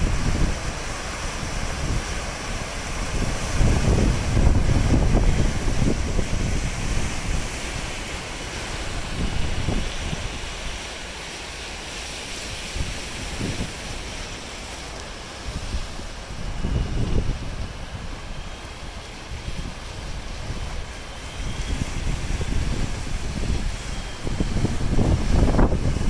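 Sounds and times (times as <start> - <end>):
waves breaking on rocky shore: 0.0 - 26.0
wind buffeting microphone: 0.0 - 26.0.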